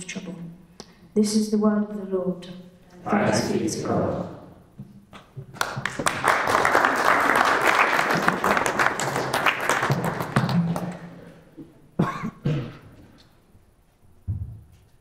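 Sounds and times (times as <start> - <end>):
congregation applauding: 5.5 - 11.4
microphone knocks: 14.2 - 14.8.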